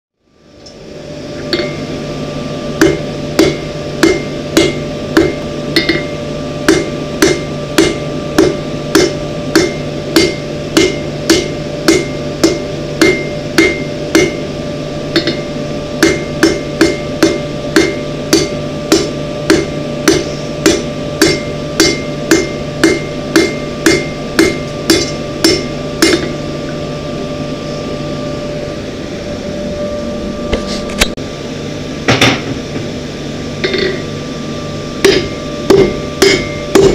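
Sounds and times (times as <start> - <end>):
steady hum: 0.2 - 36.9
hammer striking steel on anvil: 1.5 - 1.9, 2.8 - 14.5, 15.1 - 26.4, 33.6 - 34.1, 35.0 - 36.9.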